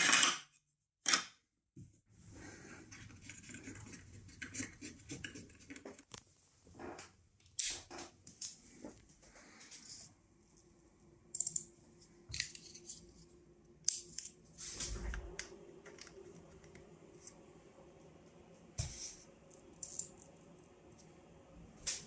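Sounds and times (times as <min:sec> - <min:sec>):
faint steady hum: 0:08.2 - 0:22.0.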